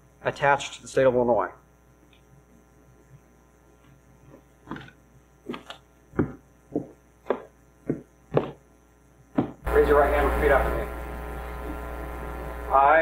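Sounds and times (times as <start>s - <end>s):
footsteps on stage floor: 5.5s - 8.6s, 9.3s - 9.6s.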